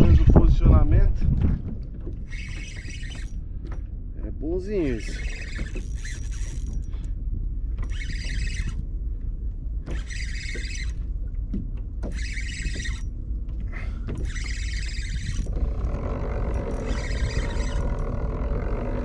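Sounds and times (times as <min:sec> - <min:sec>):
steady low rumble: 0:00.0 - 0:12.4, 0:13.0 - 0:19.0
fishing reel whirring: 0:02.2 - 0:03.8, 0:04.7 - 0:09.2, 0:09.8 - 0:11.3, 0:12.0 - 0:19.0.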